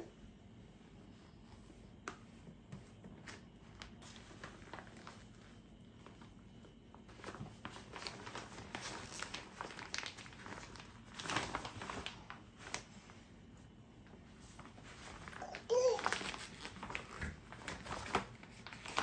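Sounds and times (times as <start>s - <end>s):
wipe rustling on hands: 0.5s - 6.4s.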